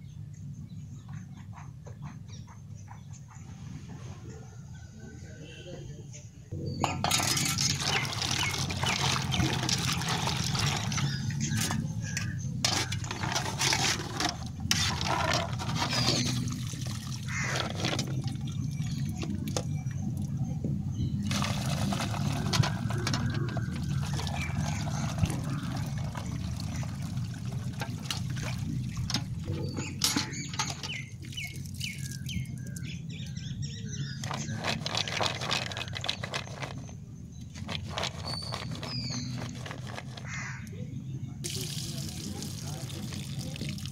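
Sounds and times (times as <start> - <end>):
water sloshing and pouring: 6.9 - 20.4, 21.2 - 32.9, 34.2 - 40.5, 41.4 - 43.9.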